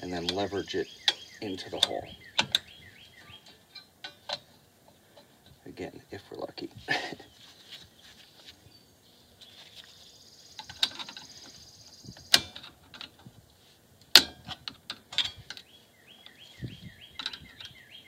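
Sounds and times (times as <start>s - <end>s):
metallic clicks of spring and screwdriver: 1.1s - 2.7s.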